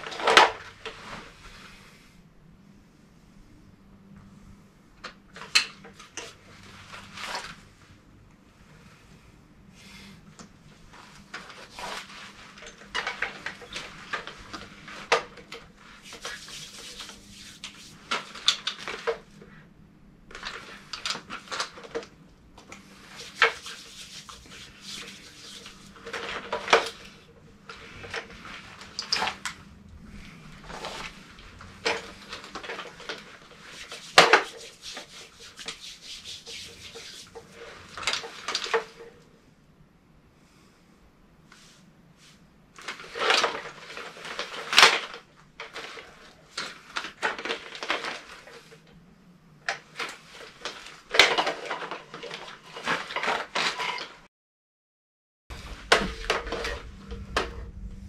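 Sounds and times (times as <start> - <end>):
hands rubbing together: 15.8 - 18.4, 22.8 - 27.2, 32.1 - 37.6.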